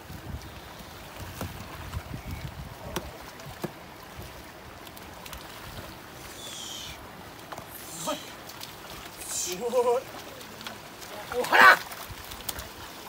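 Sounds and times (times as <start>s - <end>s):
muddy water sloshing: 0.0s - 13.0s
sharp splashes: 2.8s - 13.0s.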